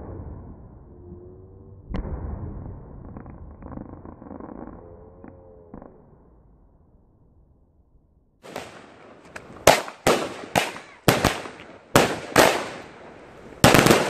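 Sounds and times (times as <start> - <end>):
firework bangs: 8.4 - 14.0.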